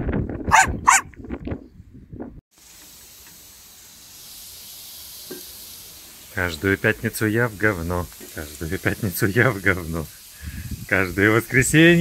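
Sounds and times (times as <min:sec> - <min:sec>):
small dog barking: 0:00.5 - 0:01.1
hot grill hissing: 0:02.5 - 0:12.0.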